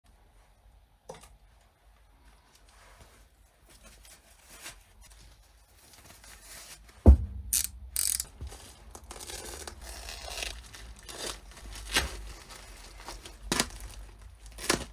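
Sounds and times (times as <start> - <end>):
gloves rustling: 1.7 - 14.9
sharp thump: 7.0 - 8.0.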